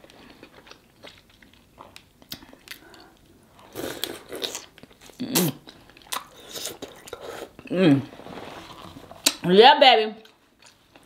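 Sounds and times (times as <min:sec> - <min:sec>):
lip smacks and chewing: 0:00.1 - 0:03.2.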